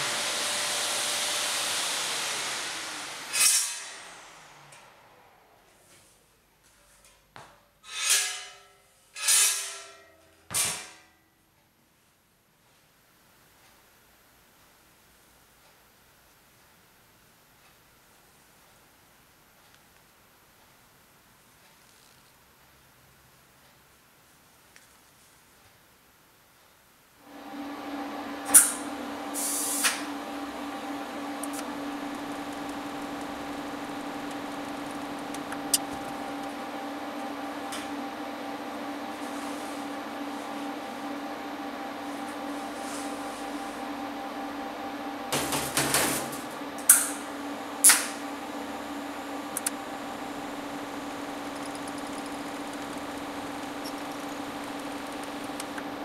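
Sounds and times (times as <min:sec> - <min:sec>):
welder electrical hum: 0:00.0 - 0:11.2, 0:26.8 - 0:56.0
sharp high-pitched clicks: 0:51.2 - 0:55.9.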